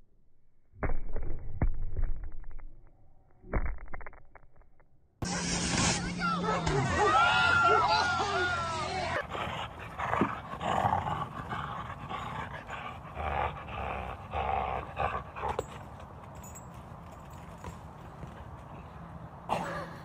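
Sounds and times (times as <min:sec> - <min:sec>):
dog growling: 0:09.2 - 0:15.5.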